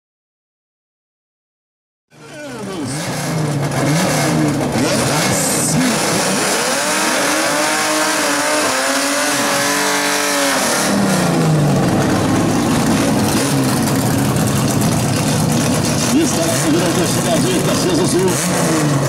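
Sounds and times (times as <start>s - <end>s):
drag car engines revving: 2.2s - 19.0s
spinning tyres squealing: 2.3s - 19.0s.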